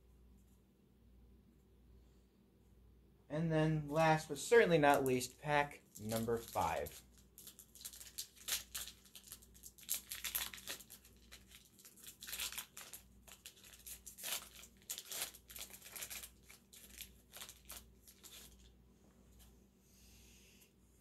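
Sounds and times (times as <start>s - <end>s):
card pack wrapper tearing: 4.8s - 18.6s.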